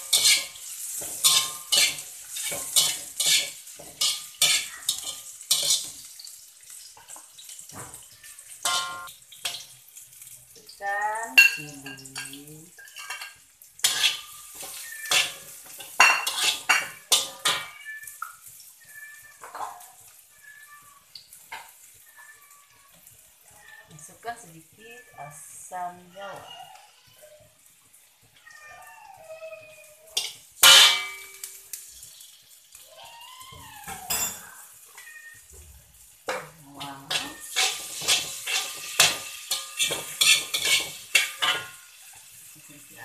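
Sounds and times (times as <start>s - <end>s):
metal spatula clinking on wok: 0.0s - 5.9s, 8.6s - 9.6s, 11.3s - 17.8s, 30.2s - 31.7s, 36.3s - 41.9s
cat meowing: 4.5s - 5.1s, 14.3s - 15.6s, 16.6s - 21.2s, 21.9s - 27.6s, 28.3s - 30.4s, 32.8s - 35.8s, 36.8s - 37.8s.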